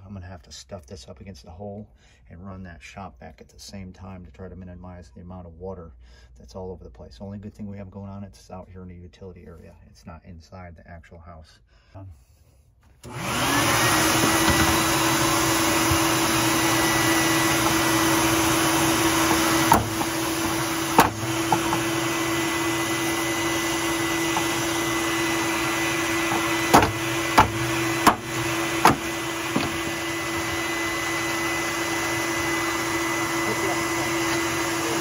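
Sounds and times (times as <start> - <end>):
shop vac running: 13.0 - 35.0
hammer blows on plastic valve: 15.8 - 30.8.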